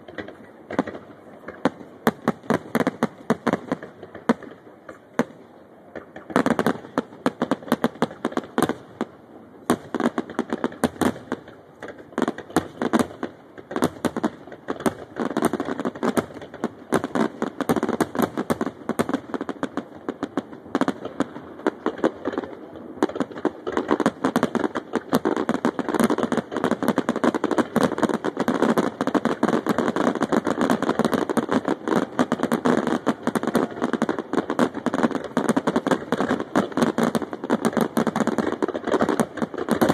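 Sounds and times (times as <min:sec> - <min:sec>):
fireworks bursting and crackling: 0:00.0 - 0:39.9.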